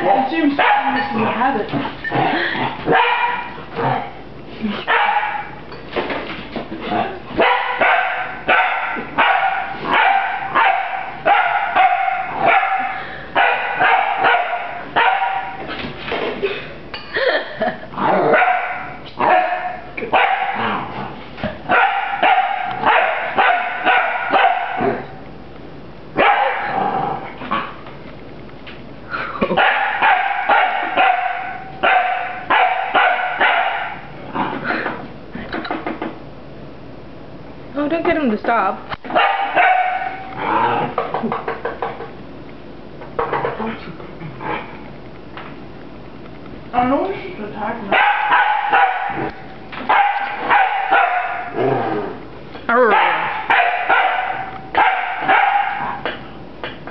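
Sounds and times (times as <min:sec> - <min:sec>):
puppy barking: 0:00.5 - 0:01.5, 0:02.9 - 0:03.6, 0:04.9 - 0:05.6, 0:07.4 - 0:15.6, 0:18.3 - 0:20.8, 0:21.7 - 0:25.1, 0:26.2 - 0:26.8, 0:29.5 - 0:34.1, 0:39.0 - 0:40.4, 0:47.9 - 0:51.6, 0:52.8 - 0:56.1.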